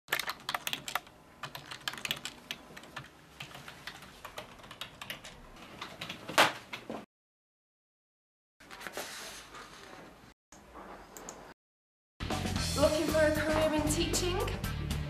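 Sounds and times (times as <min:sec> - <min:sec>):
typing on keyboard: 0:00.1 - 0:06.2.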